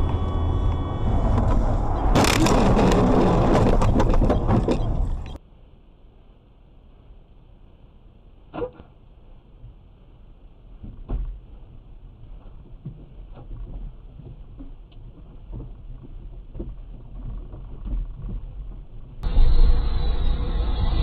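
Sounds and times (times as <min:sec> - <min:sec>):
road noise from moving car: 0:00.0 - 0:05.4, 0:15.1 - 0:21.0
stationary car rumble: 0:00.0 - 0:05.4, 0:06.2 - 0:21.0.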